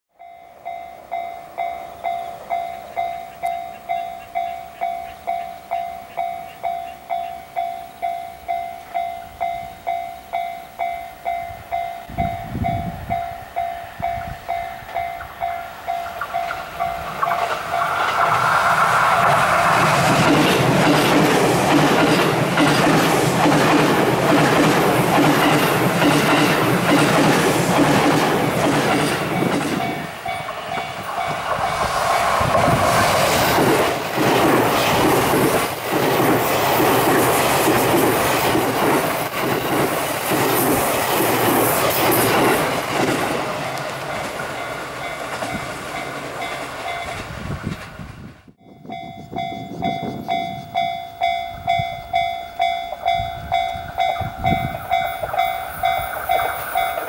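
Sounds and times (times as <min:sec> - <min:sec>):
level crossing warning bell: 0:00.1 - 0:18.1, 0:28.1 - 0:31.5, 0:44.1 - 0:47.4, 0:48.6 - 0:57.0
train wheels clacking over rail joints: 0:15.9 - 0:48.0.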